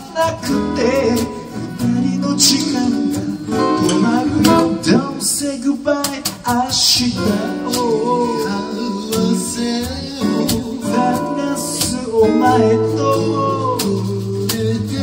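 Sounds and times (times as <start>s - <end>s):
acoustic guitar strumming: 0.0s - 6.2s
man singing: 0.0s - 15.0s.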